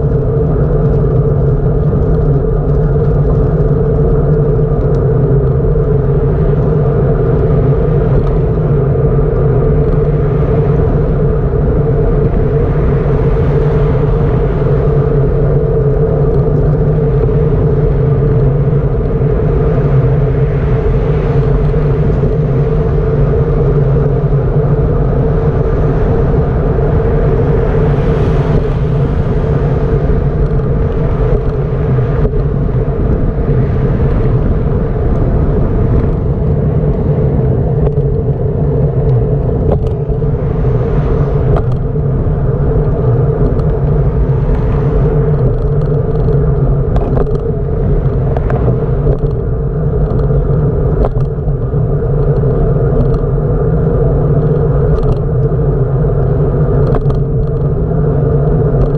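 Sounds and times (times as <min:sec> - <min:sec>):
wind and road rumble: 0:00.0 - 0:58.9
faint ticks: 0:56.8 - 0:57.7.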